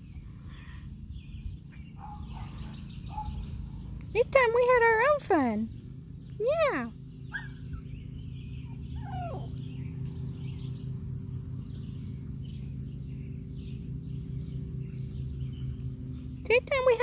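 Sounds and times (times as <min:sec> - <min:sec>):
low hum: 0:00.0 - 0:17.0
puppies whining: 0:06.7 - 0:09.9
faint bird chirps: 0:07.2 - 0:10.8.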